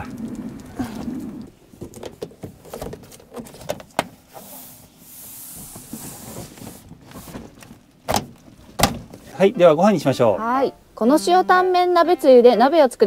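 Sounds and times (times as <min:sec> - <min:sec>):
rubbing rustle: 0:00.0 - 0:09.4
window covers knocking and clicking: 0:05.8 - 0:09.2.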